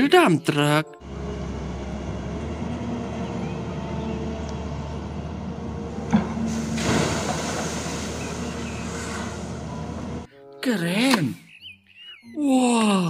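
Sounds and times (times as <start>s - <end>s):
diesel engines running: 1.0s - 10.3s
loud rushing noise: 6.4s - 10.2s.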